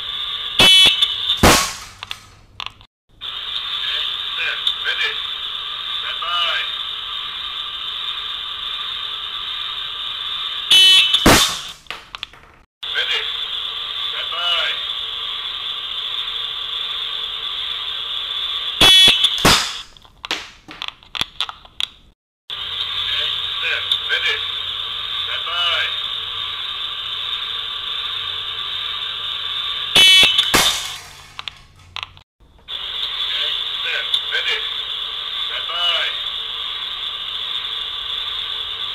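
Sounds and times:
steady hiss: 0.0s - 2.4s, 3.2s - 11.9s, 12.8s - 19.9s, 22.5s - 31.4s, 32.7s - 38.9s
pellet striking a can: 1.4s - 2.3s, 11.2s - 12.2s, 19.4s - 20.8s, 30.0s - 31.5s
slingshot shot crack: 1.4s - 2.3s, 11.1s - 12.1s, 19.1s - 20.7s, 30.0s - 31.7s
high-pitched whine: 3.2s - 11.8s, 12.8s - 19.4s, 22.5s - 31.2s, 32.7s - 38.9s.

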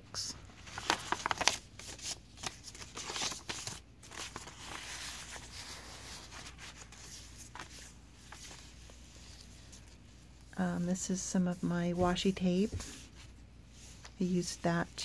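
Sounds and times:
paper pages rustling: 0.4s - 10.5s.

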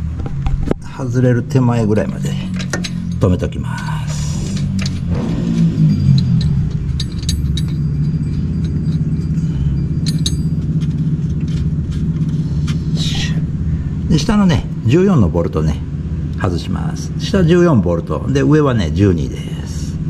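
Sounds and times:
steady low drone: 0.0s - 20.0s
wrench clinking on bolts: 1.9s - 13.0s.

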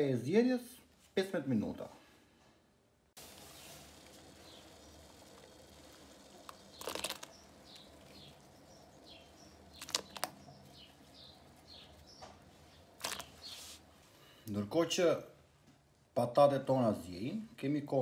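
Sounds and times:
potato splashing into water: 6.5s - 7.3s, 13.0s - 13.4s.

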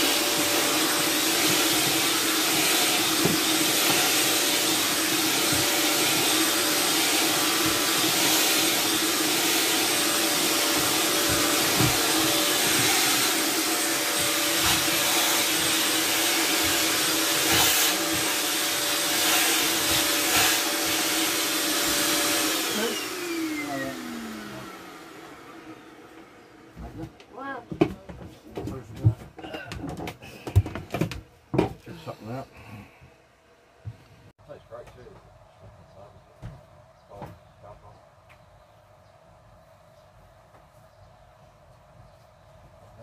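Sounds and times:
vacuum motor winding down: 0.0s - 26.7s
vacuum cleaner running: 0.0s - 27.9s.

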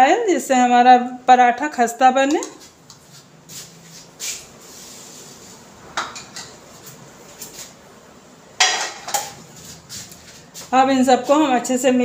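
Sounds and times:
kitchen utensils clinking: 8.6s - 9.4s
utensils clattering: 8.6s - 9.5s.

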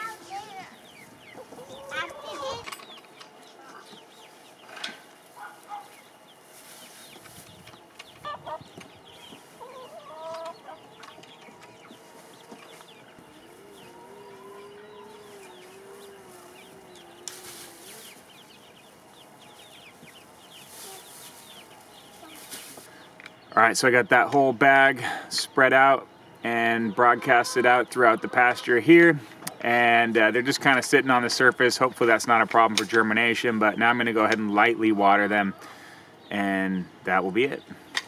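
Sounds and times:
chickens clucking: 0.0s - 38.0s.

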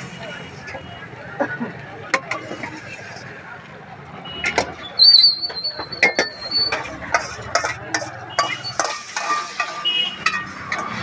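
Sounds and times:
metal spatula scraping a wok: 5.0s - 11.0s.

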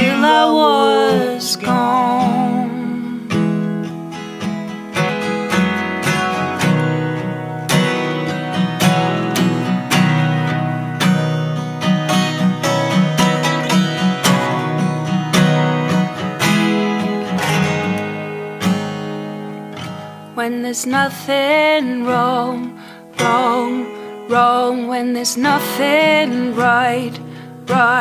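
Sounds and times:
acoustic guitar strumming: 0.0s - 28.0s.

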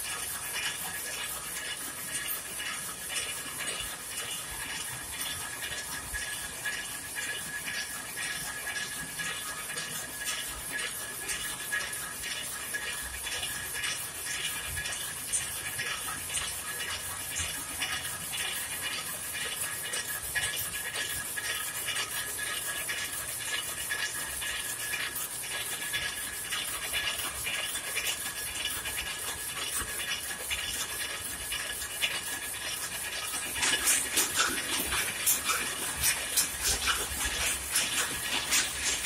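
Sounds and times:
loom mechanical clatter: 0.0s - 39.0s.

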